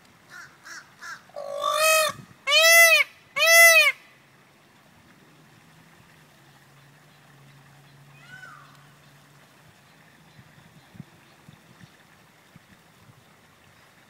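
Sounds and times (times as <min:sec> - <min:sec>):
peafowl calling: 0:00.3 - 0:04.0.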